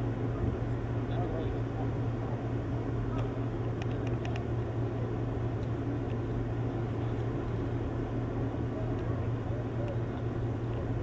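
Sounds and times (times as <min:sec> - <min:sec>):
low rumble and hiss: 0:00.0 - 0:11.0
faint clicks: 0:03.1 - 0:04.5.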